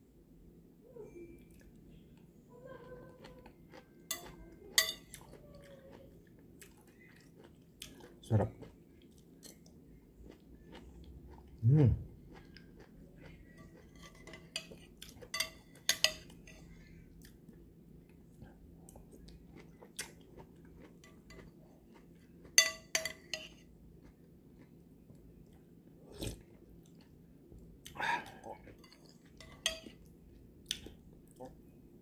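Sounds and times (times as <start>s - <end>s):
chewing: 3.0s - 27.2s, 27.8s - 31.6s
metal spoon clinking bowl: 4.1s - 5.2s, 13.6s - 16.6s, 22.6s - 23.6s, 28.8s - 30.0s.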